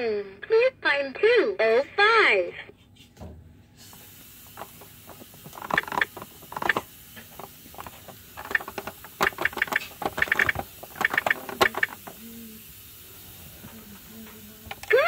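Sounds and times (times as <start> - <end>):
toy clock hands ratchet clicking: 4.6 - 12.2, 14.7 - 15.0.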